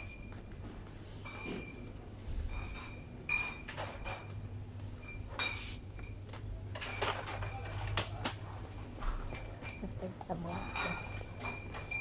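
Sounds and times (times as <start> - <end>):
clinks and knocks: 2.5 - 8.2, 9.0 - 12.0.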